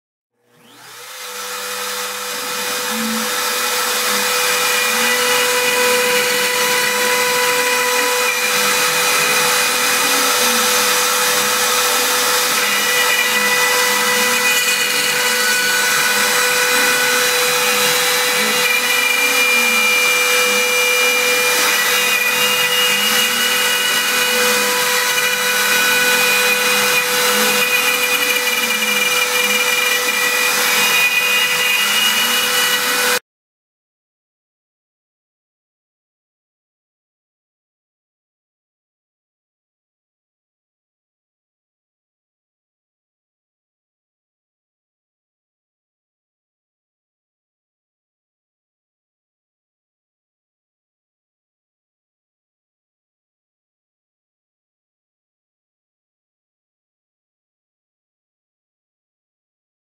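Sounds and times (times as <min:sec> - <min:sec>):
milling spindle whine: 0:01.7 - 0:33.1.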